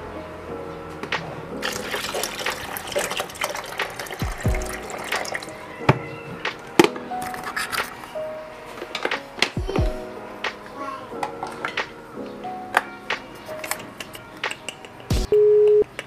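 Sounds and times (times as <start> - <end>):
water pouring into kettle: 1.6 - 5.6.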